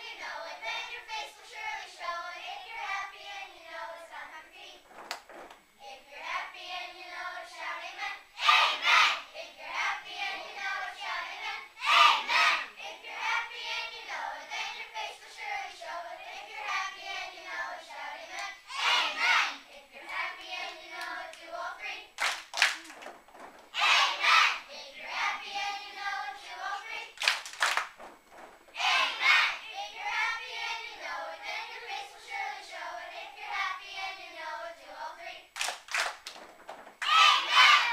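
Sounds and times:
children's choir singing: 0:00.0 - 0:04.8, 0:05.8 - 0:22.2, 0:23.8 - 0:27.2, 0:28.7 - 0:35.6, 0:37.0 - 0:37.9
sharp claps: 0:22.2 - 0:23.5, 0:27.2 - 0:28.5, 0:35.6 - 0:37.2.

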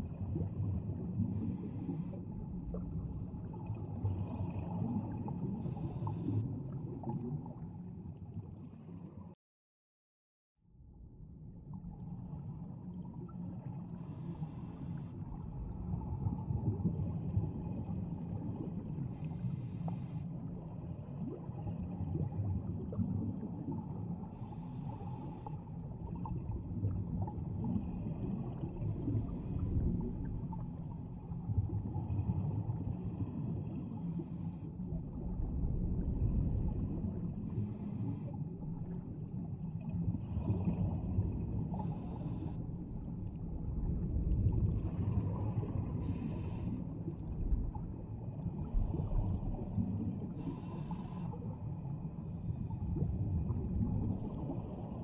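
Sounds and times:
underwater air bubbles gurgling: 0:00.0 - 0:09.4, 0:11.4 - 0:55.0
breath hiss through regulator: 0:01.2 - 0:02.3, 0:05.5 - 0:06.4, 0:14.0 - 0:15.2, 0:19.1 - 0:20.3, 0:24.3 - 0:25.6, 0:37.4 - 0:38.4, 0:41.7 - 0:42.7, 0:45.9 - 0:47.0, 0:50.3 - 0:51.5.

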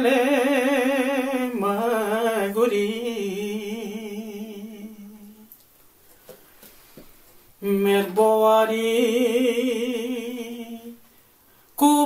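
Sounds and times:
woman singing unaccompanied: 0:07.6 - 0:11.0, 0:11.8 - 0:12.0.

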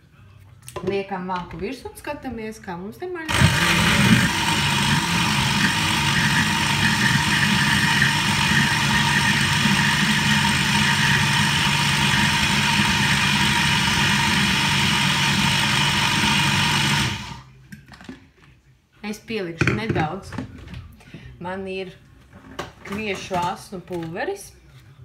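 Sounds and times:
blender running: 0:03.3 - 0:17.5.

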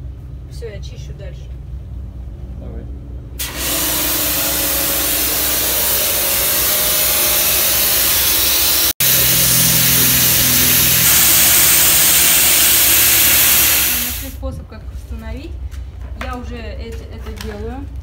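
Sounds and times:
pressure washer hissing: 0:03.4 - 0:14.4.

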